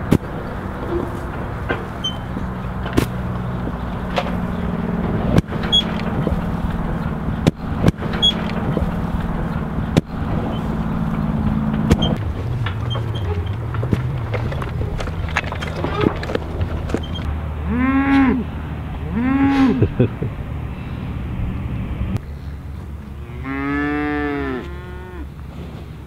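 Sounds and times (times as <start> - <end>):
sharp knocks and thuds: 0.0 - 17.3
wagon rolling rumble: 0.0 - 17.6.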